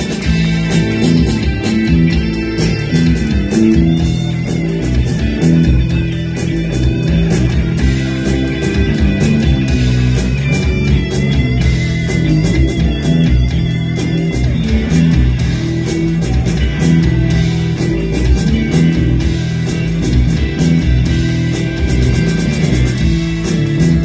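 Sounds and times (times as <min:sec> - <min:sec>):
bass guitar: 0:00.0 - 0:24.0
drum kit beat: 0:00.0 - 0:24.0
electric guitar riffs: 0:00.0 - 0:24.0
keyboard: 0:00.0 - 0:24.0.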